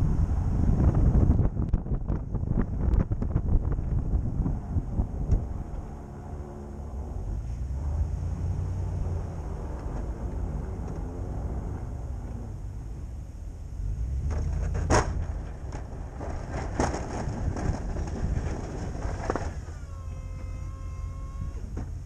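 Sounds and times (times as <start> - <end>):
plow blade knocks and clunks: 14.2 - 19.8.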